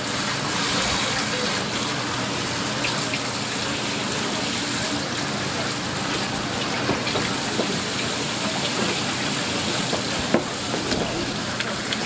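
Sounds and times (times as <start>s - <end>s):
tap water running onto plastic board: 2.7s - 12.0s.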